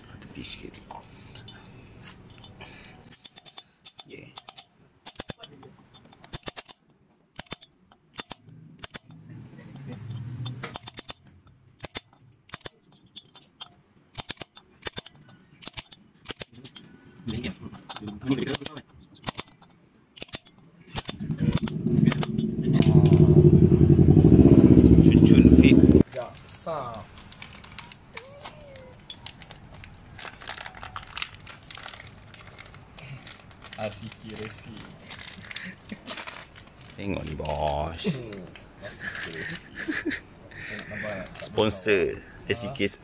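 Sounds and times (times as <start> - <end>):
sharp metallic clicks and taps: 3.1 - 9.2, 9.9 - 16.8, 17.9 - 23.3
plastic bag crinkling: 27.0 - 38.0.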